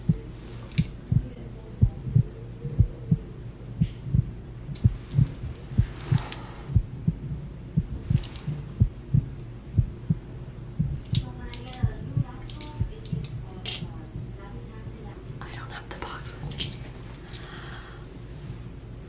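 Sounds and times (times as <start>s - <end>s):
heartbeat thumps: 0.0s - 14.5s
low hum: 0.0s - 19.0s.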